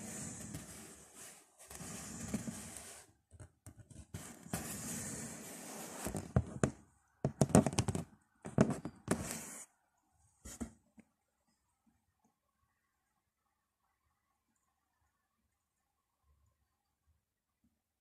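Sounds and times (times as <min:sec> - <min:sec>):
knocks and clatters: 0:06.3 - 0:09.2.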